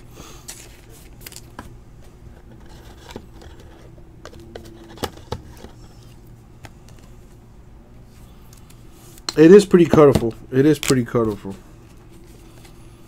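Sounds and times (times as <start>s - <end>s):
low steady hum: 0.0s - 13.0s
plastic scraping and rustling: 2.3s - 6.2s.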